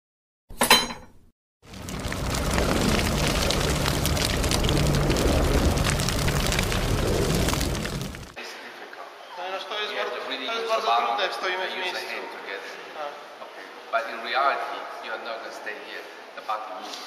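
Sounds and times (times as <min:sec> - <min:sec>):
deep rumble of crackling flames: 0:01.6 - 0:08.4.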